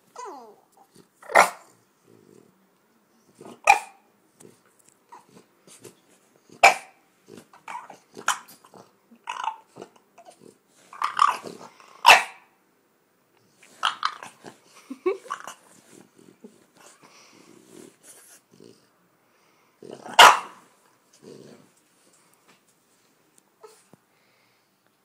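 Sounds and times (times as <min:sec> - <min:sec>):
dog whining: 0:00.1 - 0:01.4
dog growling: 0:00.2 - 0:02.6, 0:04.4 - 0:12.0, 0:15.2 - 0:18.9, 0:19.8 - 0:20.3, 0:21.1 - 0:21.8.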